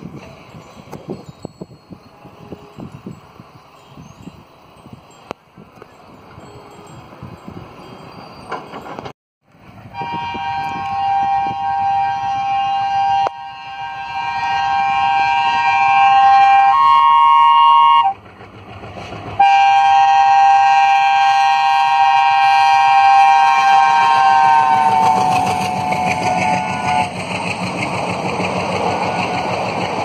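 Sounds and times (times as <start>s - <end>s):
train wheels on track: 0.0s - 30.0s
diesel locomotive horn blasts: 2.0s - 3.0s, 9.8s - 18.2s, 19.4s - 27.3s.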